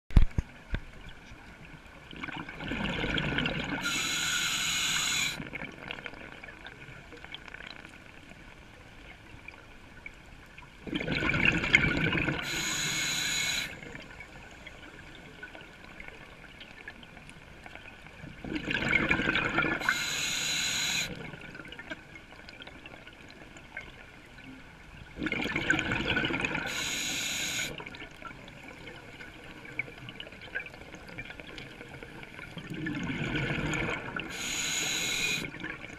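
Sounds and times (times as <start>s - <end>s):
diver breathing through regulator: 3.8s - 5.4s, 12.4s - 13.8s, 19.8s - 21.2s, 26.6s - 27.8s, 34.3s - 35.5s.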